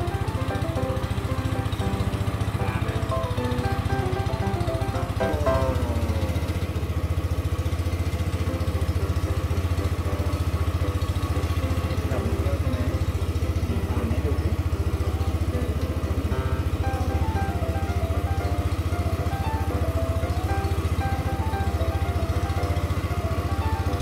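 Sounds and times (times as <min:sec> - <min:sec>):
boat engine chugging: 0:00.0 - 0:24.0.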